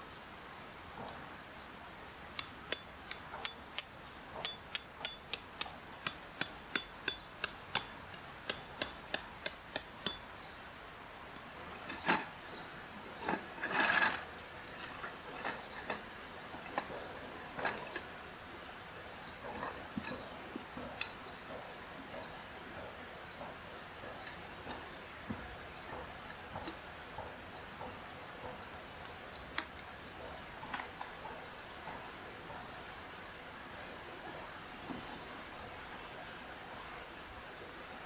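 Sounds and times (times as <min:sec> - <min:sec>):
hammer tapping tent pegs: 0:02.4 - 0:10.4.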